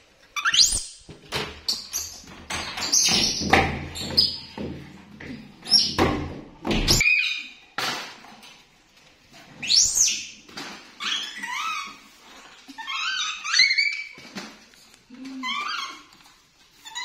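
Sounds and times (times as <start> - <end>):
monkeys squealing: 11.0 - 14.2, 15.4 - 16.1.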